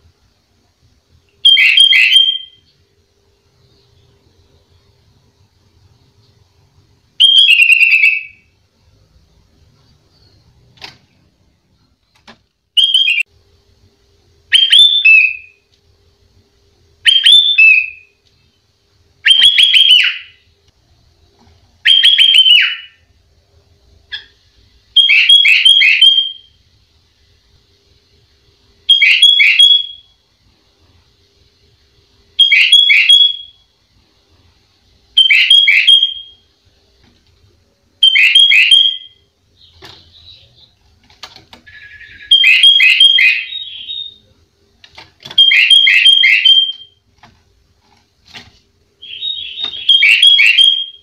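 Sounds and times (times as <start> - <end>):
bird singing whistled phrases: 1.4 - 2.8, 7.2 - 8.5, 12.8 - 13.2, 14.5 - 15.6, 17.1 - 18.2, 19.2 - 20.4, 21.8 - 23.0, 25.0 - 26.6, 28.9 - 30.1, 32.4 - 33.6, 35.2 - 36.4, 38.0 - 40.7, 41.7 - 44.3, 45.4 - 47.0, 49.0 - 51.0.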